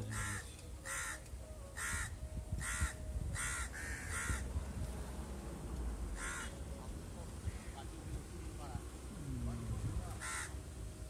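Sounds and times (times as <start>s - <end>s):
crow cawing: 0.0s - 4.5s, 6.2s - 6.6s, 7.4s - 7.9s, 10.2s - 10.6s.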